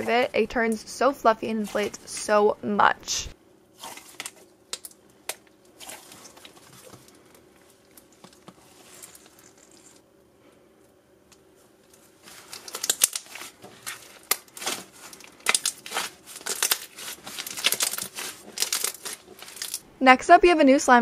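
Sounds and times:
slime crackling and popping: 3.8 - 10.0, 12.2 - 19.8.

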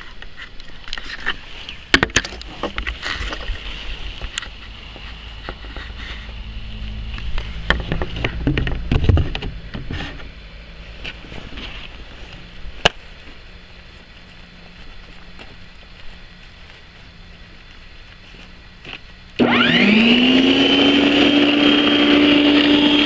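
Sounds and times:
wind rumbling on microphone: 0.0 - 14.1
faint steady hum: 0.0 - 23.0.

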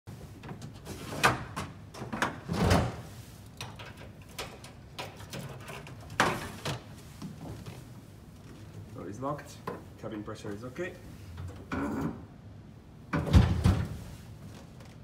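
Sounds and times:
door mechanism clicks and clunks: 13.1 - 14.0.

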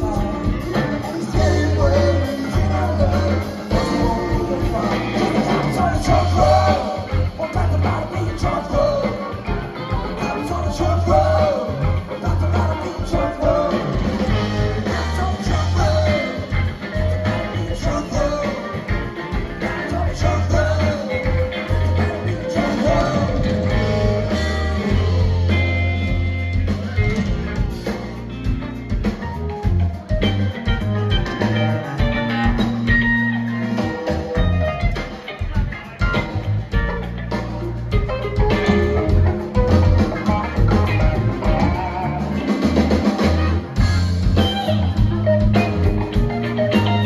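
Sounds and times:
person singing: 0.0 - 26.2
bass guitar: 0.0 - 47.0
drum kit: 0.0 - 47.0
electric guitars: 0.0 - 47.0.

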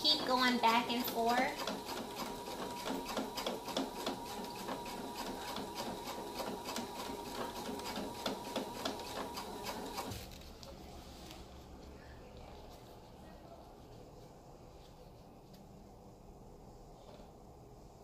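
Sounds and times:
sewing machine motor whine: 0.0 - 10.2.

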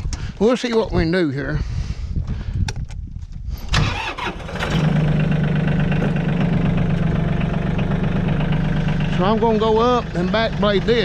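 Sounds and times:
engine clicks: 3.6 - 11.0
tractor engine running: 3.6 - 11.0.

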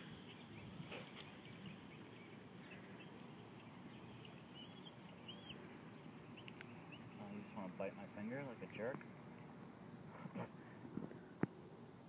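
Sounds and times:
faint bird chirps: 0.0 - 7.7.

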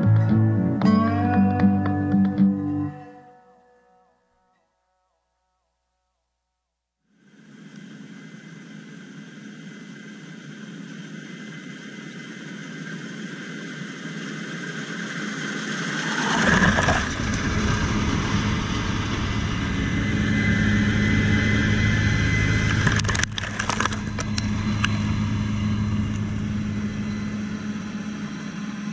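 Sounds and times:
combine engine drone: 7.1 - 28.9
high whine: 7.1 - 28.9.

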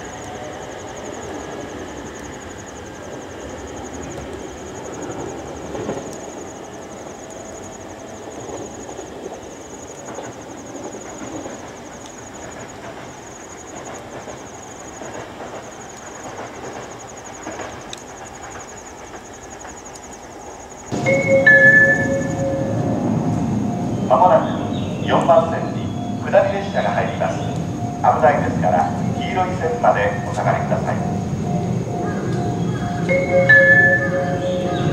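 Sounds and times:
train wheels rumbling on rails: 0.0 - 34.9
loud held tones: 20.7 - 34.9.

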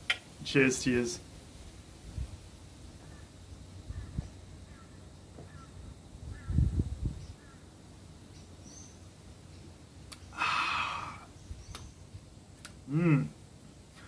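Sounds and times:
faint bird chirps: 3.0 - 7.7, 8.3 - 12.1
breathy exhale: 10.3 - 11.3.

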